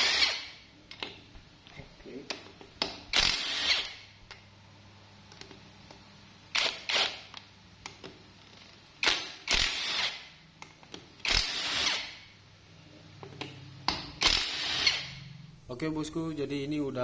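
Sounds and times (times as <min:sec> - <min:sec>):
impact wrench bursts: 0:00.0 - 0:00.6, 0:03.1 - 0:04.0, 0:06.5 - 0:07.3, 0:09.0 - 0:10.3, 0:11.2 - 0:12.3, 0:14.1 - 0:15.3.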